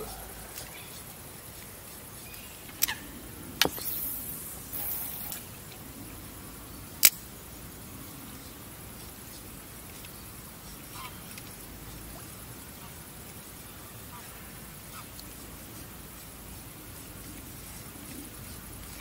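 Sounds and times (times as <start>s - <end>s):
short high hisses: 3.7s - 5.5s.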